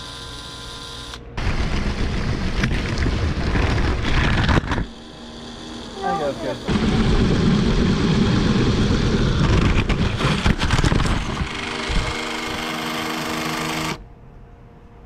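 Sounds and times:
toy train motor hum: 0.0 - 1.2, 4.8 - 14.0
loud rushing noise: 6.7 - 12.6.

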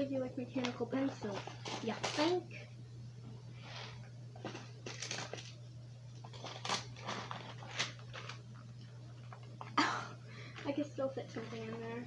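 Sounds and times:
plastic pouch rustling: 0.6 - 2.4, 3.6 - 5.6, 6.2 - 9.6.

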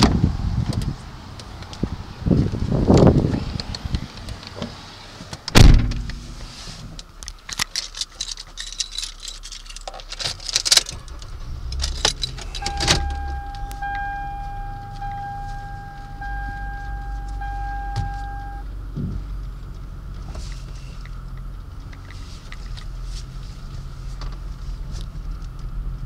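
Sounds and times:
car engine cranking and idling: 0.0 - 26.0
car door shutting: 5.4 - 6.5, 10.6 - 19.2
keys jangling in ignition: 7.5 - 15.9
electronic warning chime: 12.5 - 18.6.

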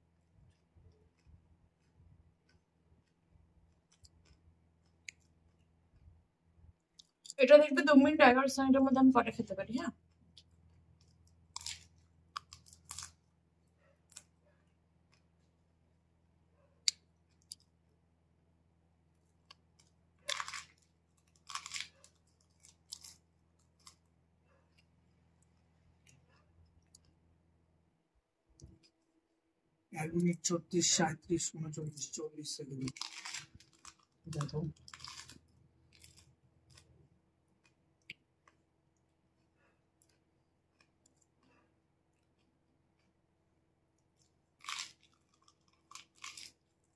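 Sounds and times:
crisp crunches and chewing: 0.1 - 7.4, 10.0 - 15.7, 16.8 - 17.9, 19.1 - 27.4, 32.7 - 43.3, 44.0 - 46.9.

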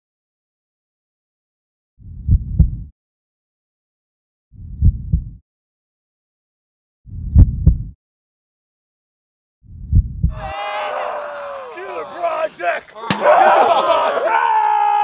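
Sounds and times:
heartbeat double thumps: 2.0 - 2.9, 4.6 - 5.4, 7.1 - 8.0, 9.6 - 10.4.

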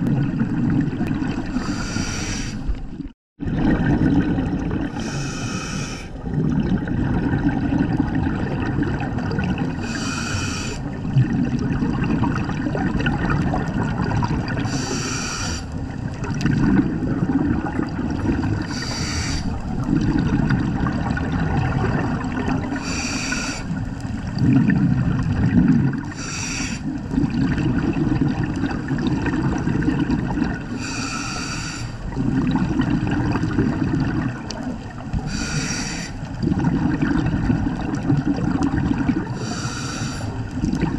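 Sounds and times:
bubbling exhales: 0.0 - 40.9
regulator hissing inhale: 1.5 - 2.8, 4.9 - 6.2, 9.8 - 10.9, 14.7 - 15.8, 18.6 - 19.6, 22.8 - 23.8, 26.1 - 27.0, 30.8 - 32.1, 35.2 - 36.3, 39.3 - 40.5.

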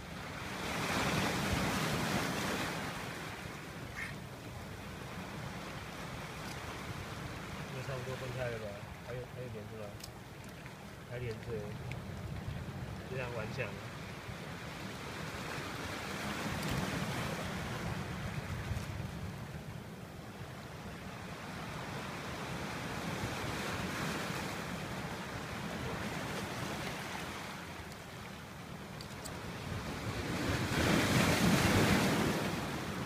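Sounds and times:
surf washing onto stony beach: 0.0 - 19.7, 20.5 - 33.0
wind buffeting microphone: 10.3 - 13.2, 14.3 - 20.6.

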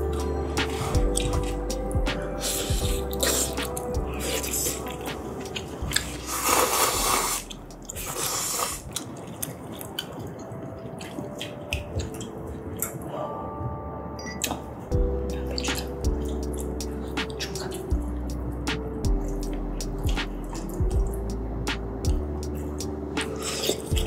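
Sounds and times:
chewing and slurping: 0.0 - 13.1, 22.4 - 24.0.

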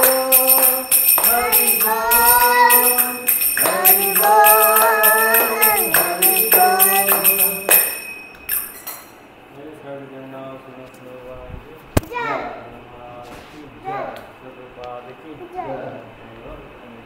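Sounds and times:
devotional singing: 0.0 - 8.6
hand bell ringing: 0.0 - 9.2.

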